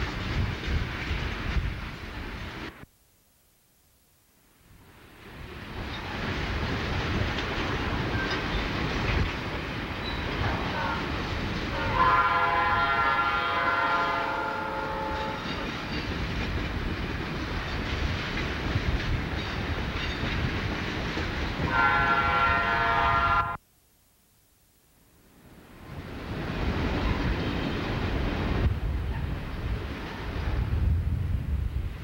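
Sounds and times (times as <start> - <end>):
train rumble and rail clatter: 0.0 - 2.9, 4.8 - 23.6, 25.4 - 32.0
chord train whistle: 11.7 - 15.6, 21.7 - 23.6.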